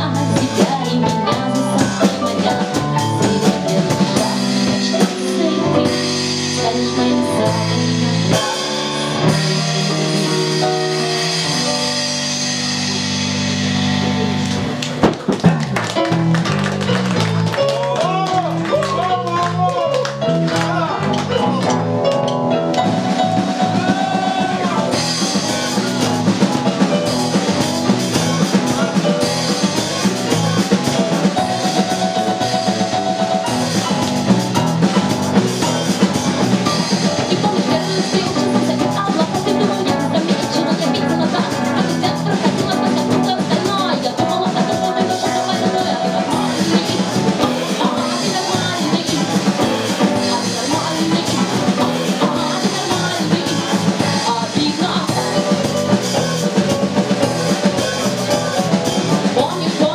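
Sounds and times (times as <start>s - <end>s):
live band playing: 0.0s - 59.9s.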